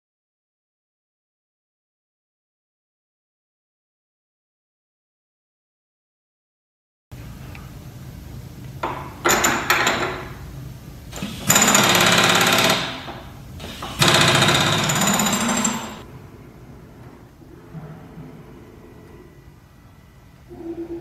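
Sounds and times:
power drawbar hammering: 11.2 - 16.0.

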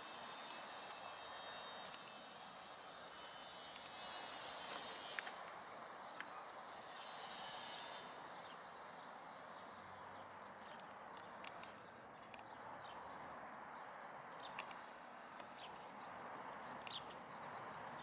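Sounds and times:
sharp clicks: 10.7 - 12.5, 14.4 - 15.9.

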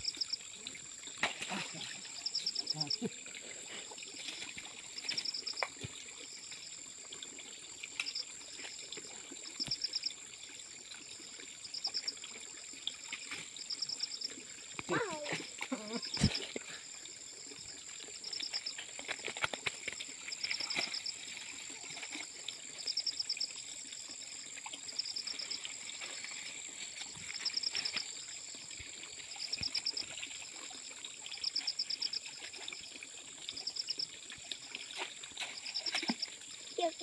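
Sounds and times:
insect pulsed chirp: 0.0 - 37.0
water trickling and splashing: 0.0 - 37.0
insects high-pitched drone: 1.5 - 3.2, 19.6 - 32.9.

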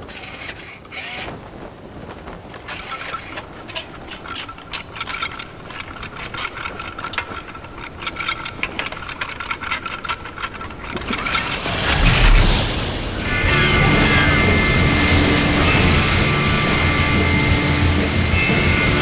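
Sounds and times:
robot parts clicking and ratcheting: 2.7 - 17.3.

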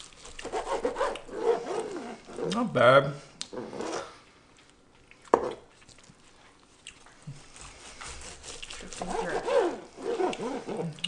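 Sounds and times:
knife slicing meat: 7.3 - 10.6.

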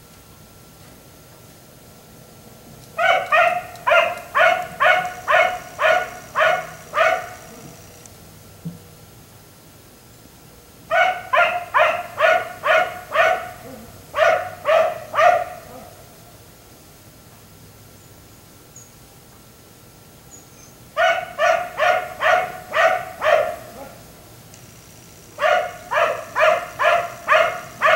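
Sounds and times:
dog barking: 3.0 - 7.7, 10.9 - 16.1, 21.0 - 24.1, 25.4 - 27.9.

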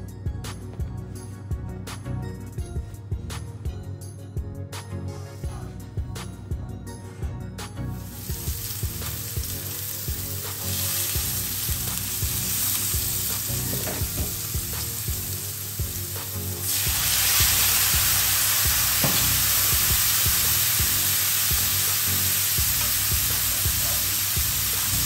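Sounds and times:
apple slices sizzling in frying pan: 8.0 - 25.0
liquid boiling off in hot pan: 8.1 - 25.0.

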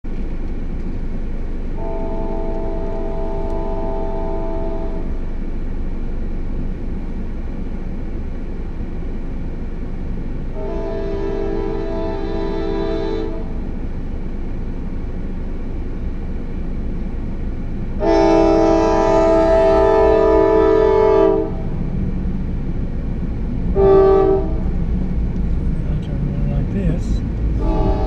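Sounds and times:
locomotive air horn blasts: 1.8 - 5.1, 10.5 - 13.7, 18.0 - 21.8, 23.7 - 24.7, 27.6 - 28.0
low rumble: 13.3 - 28.0.

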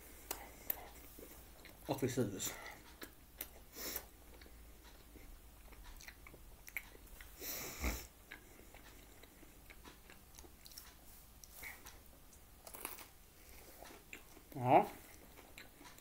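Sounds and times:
person chewing food: 0.0 - 16.0
mouth clicks and smacks: 2.6 - 13.1.

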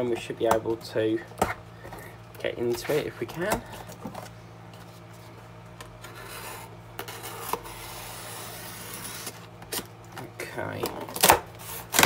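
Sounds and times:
knife scraping along tape: 6.0 - 9.9.

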